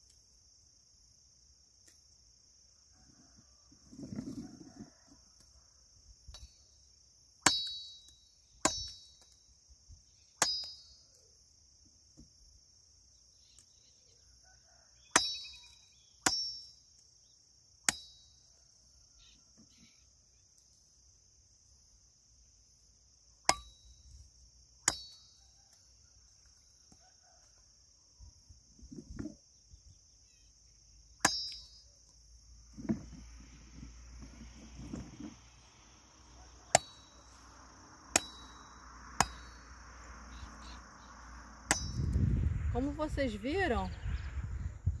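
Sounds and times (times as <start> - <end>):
machete chopping stems: 8.6 - 9.0, 15.2 - 15.6, 16.2 - 16.6, 23.5 - 23.8, 31.2 - 31.7, 38.1 - 39.6
high insect buzz: 27.2 - 43.0.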